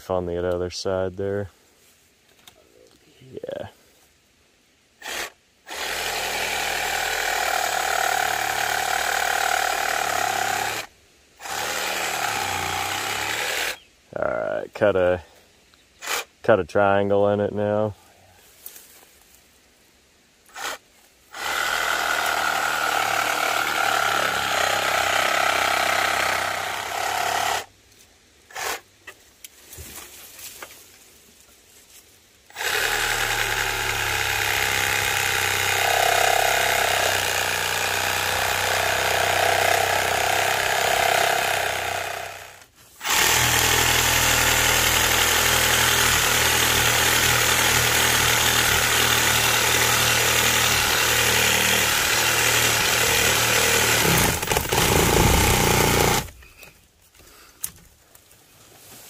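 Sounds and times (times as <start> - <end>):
reciprocating saw cutting wood: 5.0 - 13.8, 20.5 - 27.7, 32.5 - 56.4.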